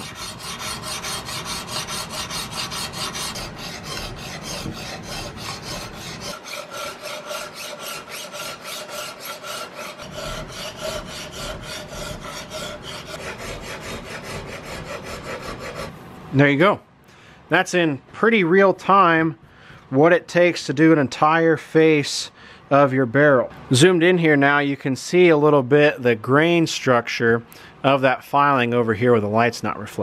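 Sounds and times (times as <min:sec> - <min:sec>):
file scraping steel: 0:00.0 - 0:16.0.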